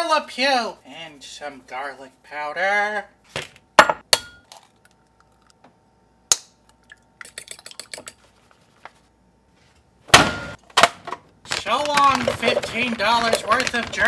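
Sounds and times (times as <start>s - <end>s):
fork beating eggs in bowl: 7.2s - 8.6s.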